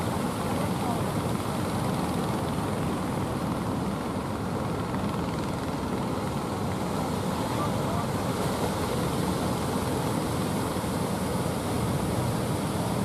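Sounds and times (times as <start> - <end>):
boat engine droning: 0.0 - 13.0
surf rushing: 6.0 - 13.0.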